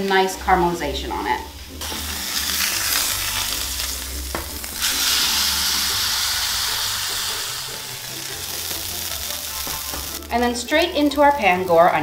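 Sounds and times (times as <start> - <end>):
meat sizzling in a pan: 1.4 - 10.3.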